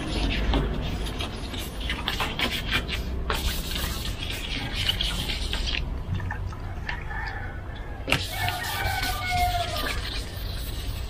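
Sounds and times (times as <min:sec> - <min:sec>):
wet sanding scrubbing strokes: 0:00.0 - 0:05.9, 0:08.1 - 0:11.0.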